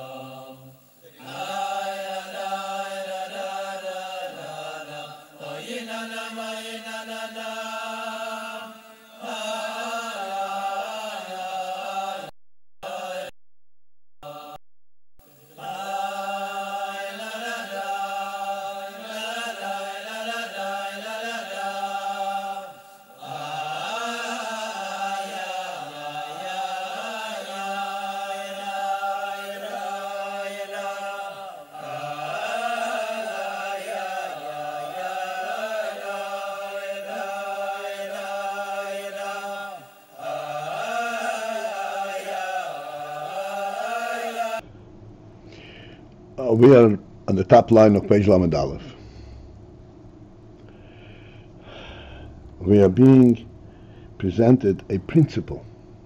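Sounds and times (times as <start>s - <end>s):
person singing wordless chant: 0.0s - 13.3s, 14.2s - 14.6s, 15.2s - 44.6s.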